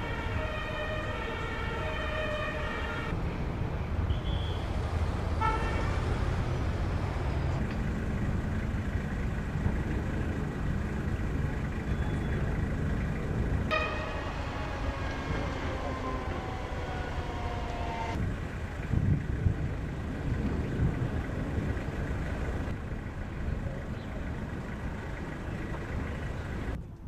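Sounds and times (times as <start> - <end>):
emergency siren: 0.0 - 3.2, 13.7 - 18.3
heavy vehicle engine running: 0.0 - 27.0.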